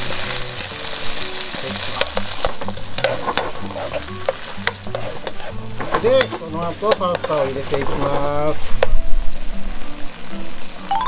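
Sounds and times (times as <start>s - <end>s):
food sizzling in a frying pan: 0.0s - 11.0s
metal tongs clicking against pan: 2.0s - 7.8s.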